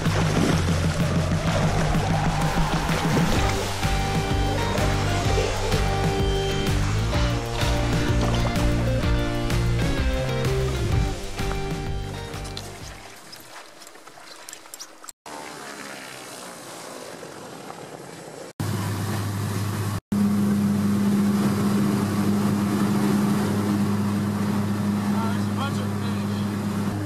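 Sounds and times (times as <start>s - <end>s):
background music: 0.0s - 12.9s
plane cabin engine hum: 15.3s - 27.0s
plane passing outside: 15.3s - 27.0s.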